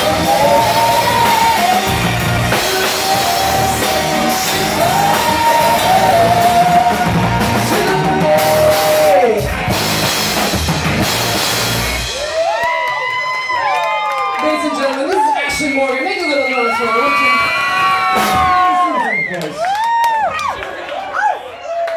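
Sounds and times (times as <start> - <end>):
man and woman singing: 0.0 - 9.5
live rock band playing: 0.0 - 12.5, 17.8 - 18.8
drum kit: 0.0 - 12.8, 17.6 - 19.0.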